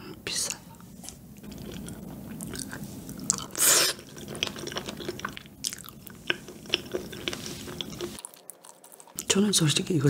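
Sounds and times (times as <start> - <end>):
close chewing: 1.4 - 9.4
loud slurp: 1.5 - 5.3.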